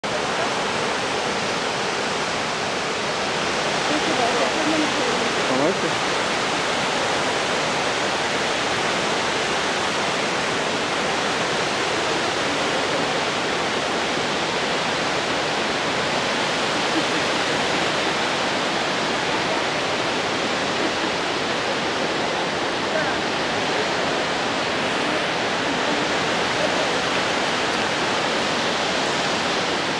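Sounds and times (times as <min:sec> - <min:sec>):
river water rushing through gorge: 0:00.0 - 0:29.9.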